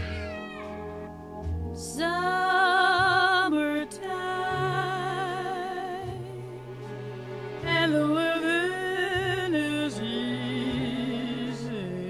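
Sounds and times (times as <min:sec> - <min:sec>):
slow low accompaniment: 0:00.0 - 0:12.0
operatic singing with vibrato: 0:03.6 - 0:12.0.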